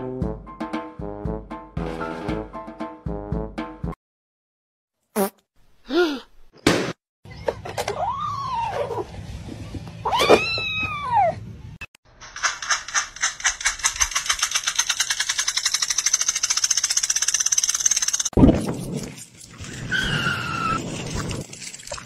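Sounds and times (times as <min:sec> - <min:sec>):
rapid pulsing ticks: 0:12.4 - 0:18.3.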